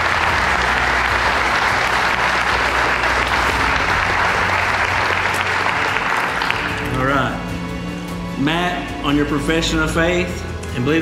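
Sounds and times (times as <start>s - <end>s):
congregation applauding: 0.0s - 7.7s.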